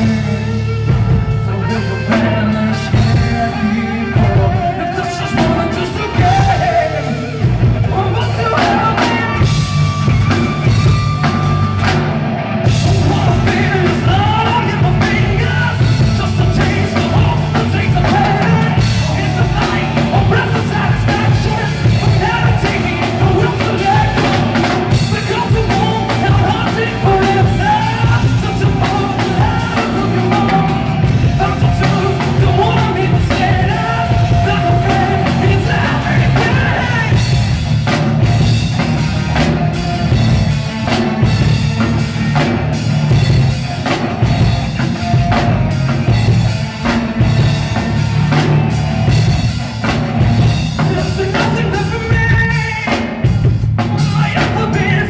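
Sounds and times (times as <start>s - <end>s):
man singing: 0.0s - 10.8s, 12.6s - 37.7s, 50.8s - 55.0s
bass guitar: 0.0s - 55.0s
drum kit: 0.0s - 55.0s
electric guitar: 0.0s - 55.0s.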